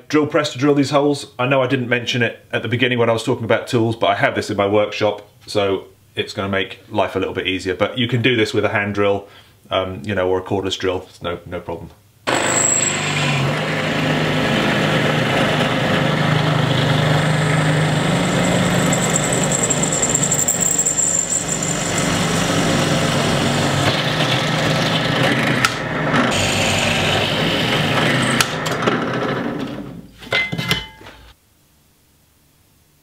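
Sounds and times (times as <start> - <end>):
drill bit whine: 12.3 - 23.9, 26.3 - 28.6
drill press motor hum: 12.3 - 29.2.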